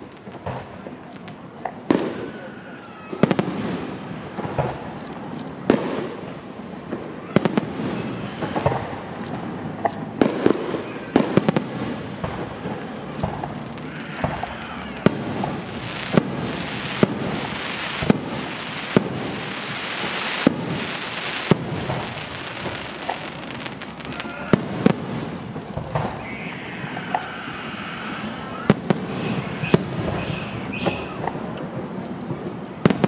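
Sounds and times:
hissing crackle: 0.0 - 31.8
firework shells bursting: 3.2 - 27.4.

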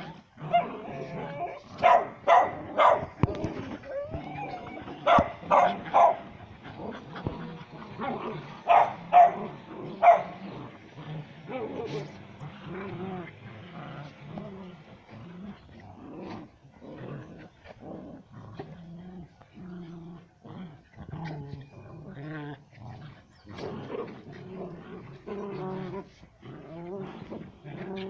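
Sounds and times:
dog growling: 0.0 - 28.0
dogs barking: 1.7 - 3.4, 4.4 - 6.4, 8.6 - 10.5.

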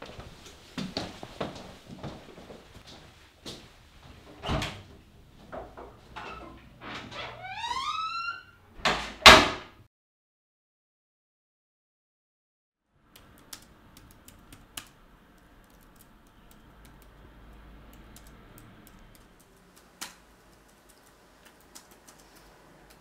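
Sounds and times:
laptop keyboard keystrokes: 13.2 - 23.0.

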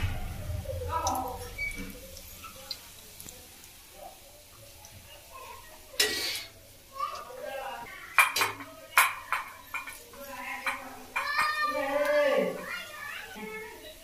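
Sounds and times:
metal utensils clinking on pots: 6.0 - 6.6, 8.1 - 12.1.

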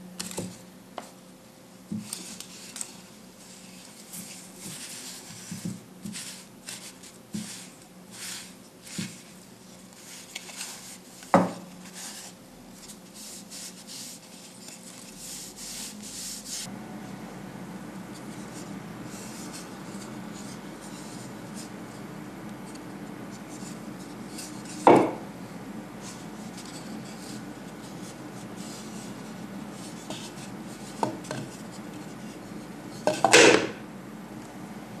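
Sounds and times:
cloth rubbing wooden cup: 13.1 - 16.7, 26.0 - 33.1
wood knocking on tabletop: 24.9 - 25.2.

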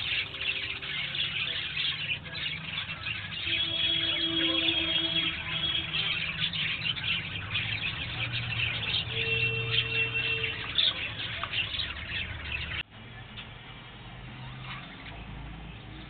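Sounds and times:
budgerigars chattering: 0.0 - 12.8.

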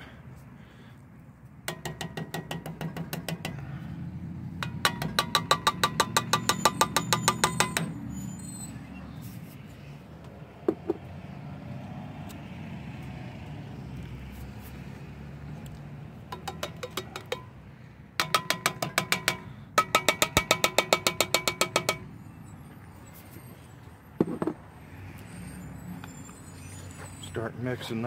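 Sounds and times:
can knocking: 16.3 - 17.5.

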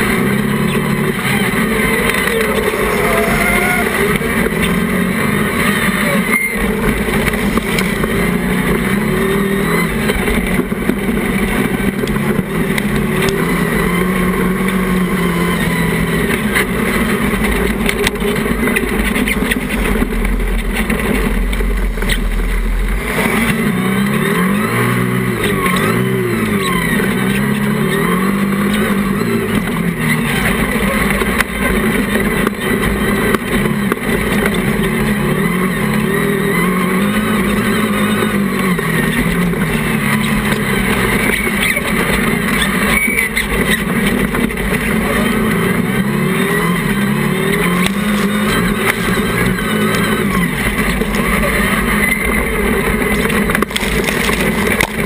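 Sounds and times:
heavy low rumble: 0.0 - 15.2, 16.2 - 26.6
racing buggy engine revving: 0.0 - 55.0.

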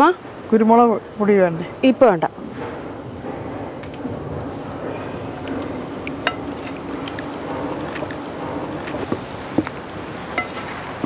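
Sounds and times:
spatula knocking against metal pan: 6.2 - 9.2.

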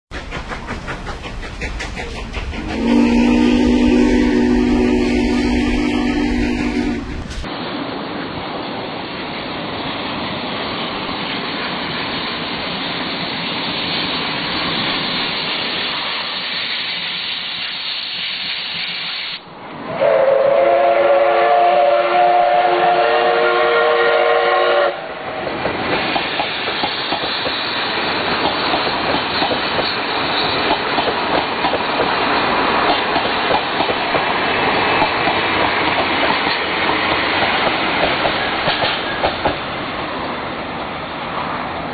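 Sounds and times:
train wheels clacking: 0.1 - 7.5, 25.5 - 40.0
steam locomotive working: 0.1 - 41.9
steam whistle blast: 2.6 - 7.5, 19.2 - 25.0.

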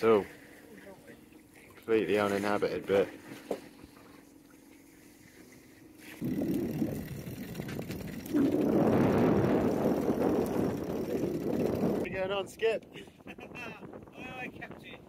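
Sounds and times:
wind buffeting microphone: 6.2 - 15.0.

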